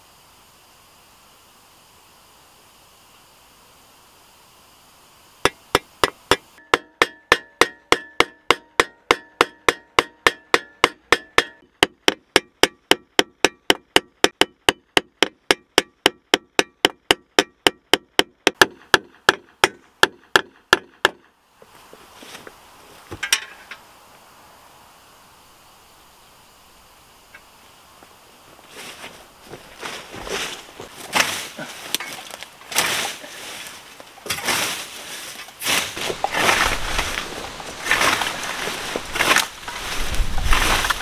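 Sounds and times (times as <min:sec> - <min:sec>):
hammer tapping scythe blade: 0:05.4 - 0:21.2
handling rustle: 0:28.4 - 0:41.0.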